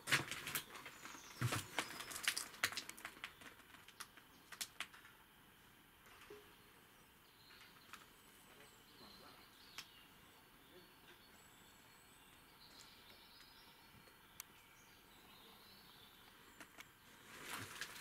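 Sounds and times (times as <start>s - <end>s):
footsteps on littered floor: 0.0s - 3.6s
quiet hiss: 0.0s - 18.0s
faint bird chirps: 6.1s - 17.3s.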